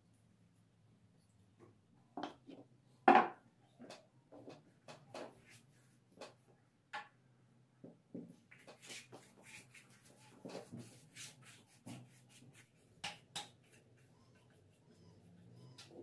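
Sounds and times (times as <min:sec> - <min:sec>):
paintbrush rubbing on handrail: 0:08.5 - 0:12.9.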